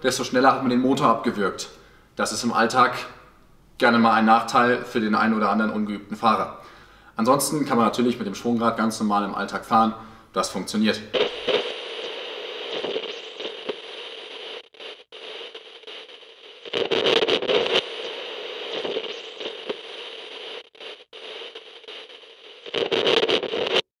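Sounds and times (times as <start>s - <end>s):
glitchy static and crackle: 7.3s - 24.0s.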